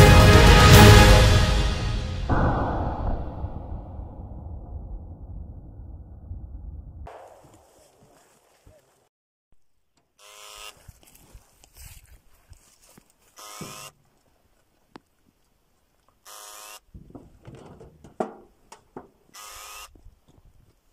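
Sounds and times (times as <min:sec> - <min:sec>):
faint rustling: 0:07.1 - 0:09.1
knocks: 0:17.0 - 0:19.2.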